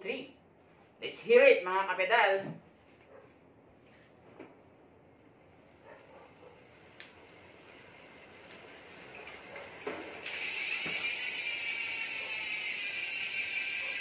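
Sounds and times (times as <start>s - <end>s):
bicycle freehub ratcheting buzz: 5.7s - 14.0s.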